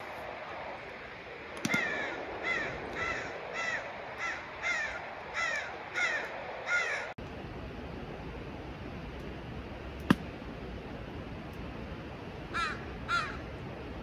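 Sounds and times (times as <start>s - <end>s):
bird calling: 1.6s - 7.2s, 12.5s - 13.5s.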